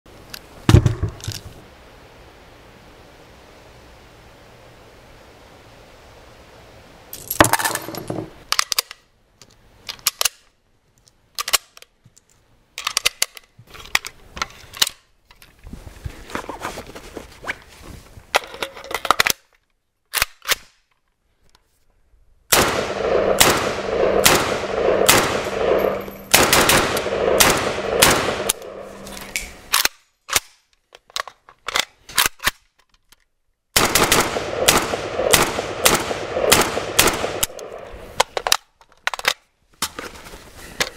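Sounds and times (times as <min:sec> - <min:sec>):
rifle gunshots: 0:22.5 - 0:29.7, 0:33.8 - 0:38.1.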